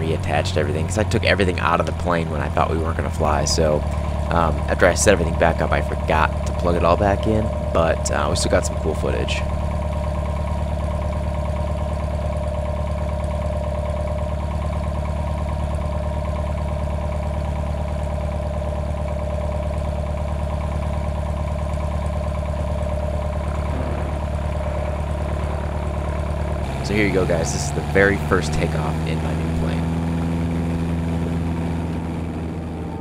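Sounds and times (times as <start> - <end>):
light aircraft engine droning: 0.0 - 33.0.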